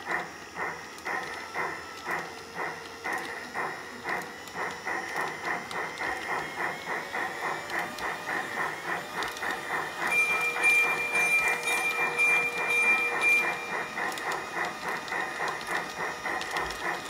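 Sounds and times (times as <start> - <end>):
model steam locomotive chuffing: 0.0 - 17.0
steady high tone: 10.0 - 14.5.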